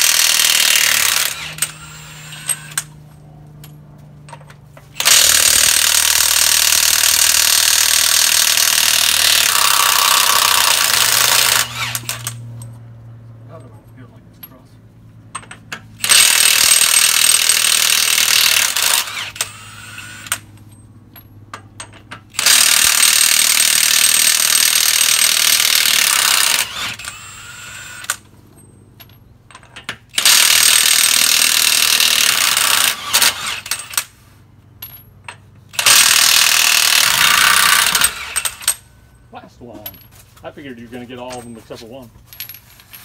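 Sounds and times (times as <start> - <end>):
impact wrench hammering: 0.0 - 2.9, 4.3 - 12.4, 15.3 - 20.5, 29.5 - 34.1, 34.9 - 38.9.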